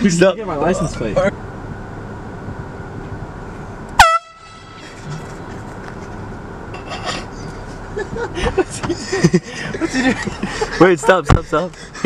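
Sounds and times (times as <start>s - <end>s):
air horn blast: 4.0s - 5.0s.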